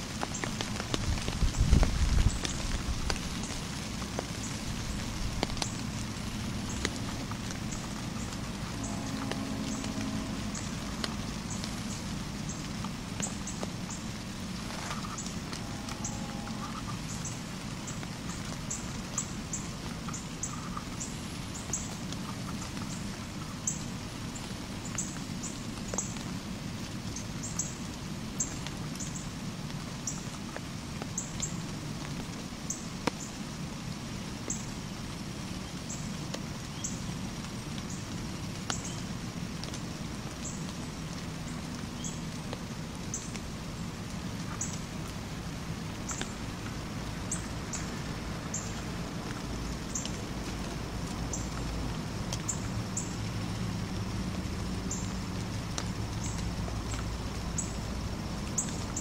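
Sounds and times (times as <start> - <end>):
steady low hiss: 0.0 - 59.0
faint high-pitched ticks: 46.1 - 57.8.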